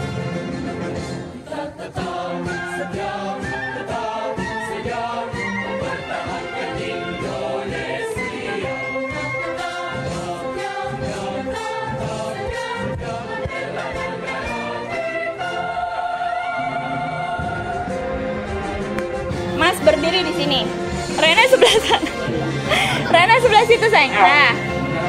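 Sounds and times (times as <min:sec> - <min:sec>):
choir singing: 0:00.0 - 0:25.0
orchestral accompaniment: 0:12.1 - 0:25.0.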